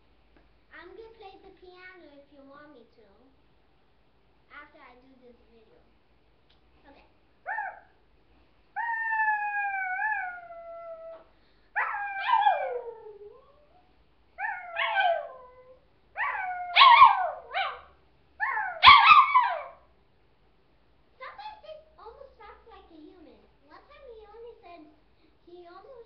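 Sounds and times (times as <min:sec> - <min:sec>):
dog howling: 0:08.8 - 0:13.8, 0:14.4 - 0:17.8, 0:18.4 - 0:19.8.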